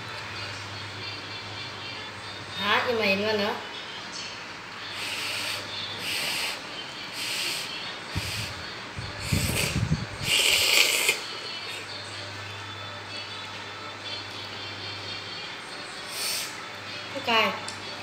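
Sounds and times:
noodles being slurped: 0:09.2 - 0:11.4.

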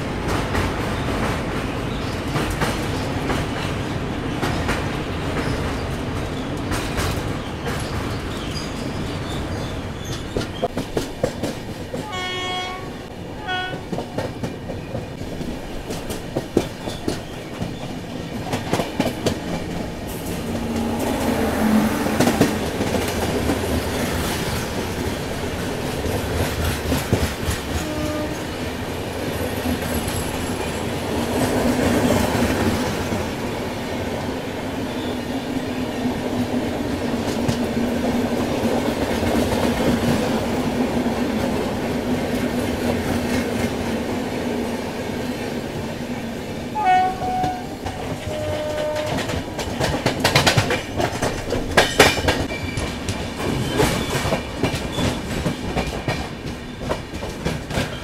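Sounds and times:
train wheels rumbling on rails: 0:00.0 - 0:58.0
train horn: 0:12.0 - 0:14.0, 0:27.7 - 0:28.6, 0:46.7 - 0:49.4.

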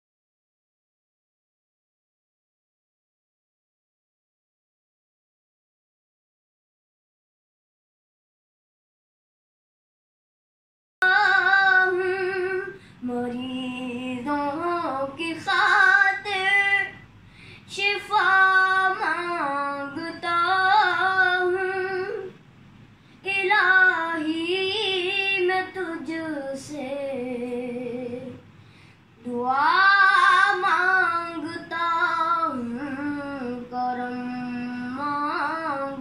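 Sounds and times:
boy singing unaccompanied: 0:11.0 - 0:17.0, 0:17.7 - 0:22.4, 0:23.2 - 0:28.4, 0:29.2 - 0:36.0.

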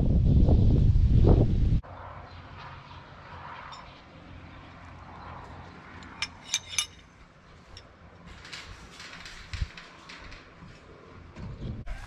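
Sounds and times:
sharp metallic clinks: 0:03.7 - 0:04.1, 0:06.0 - 0:07.9.

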